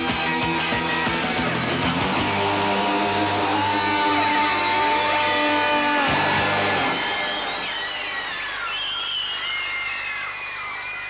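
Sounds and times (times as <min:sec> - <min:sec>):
distorted electric guitar chord ringing: 0:00.0 - 0:07.6
live rock band: 0:00.0 - 0:08.7.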